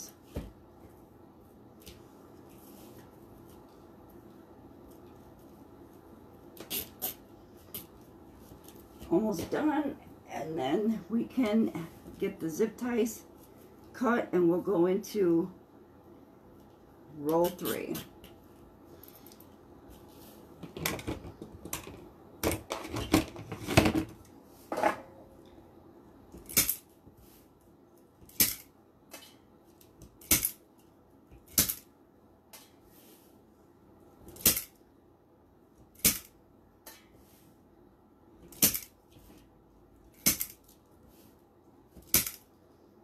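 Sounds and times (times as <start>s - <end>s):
rustling and knocking of handled materials: 0.0s - 10.0s, 11.4s - 12.3s, 18.1s - 33.5s, 38.3s - 42.8s.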